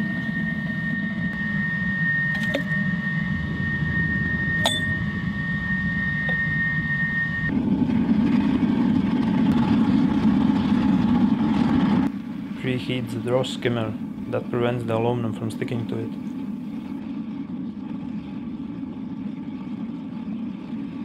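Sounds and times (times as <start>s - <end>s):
thin high whine: 0.0s - 7.6s, 12.0s - 21.0s
oil burner rumbling: 0.0s - 21.0s.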